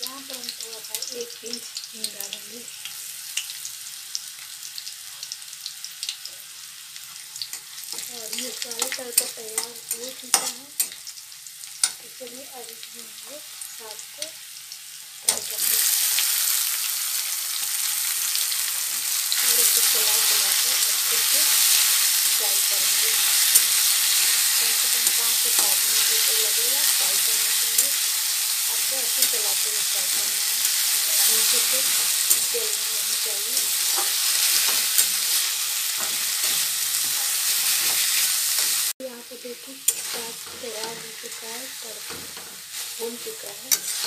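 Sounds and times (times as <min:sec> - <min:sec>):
greens sizzling in hot oil: 0:00.0 - 0:44.0
spatula tapping pan: 0:07.5 - 0:11.0
spatula stirring and scraping: 0:28.8 - 0:38.9, 0:39.8 - 0:44.0.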